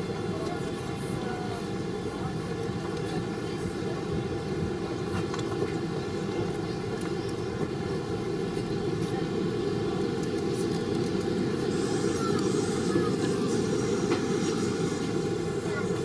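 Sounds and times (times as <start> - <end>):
jet engine cabin rumble: 0.0 - 16.0
faint steady higher tones: 11.5 - 16.0.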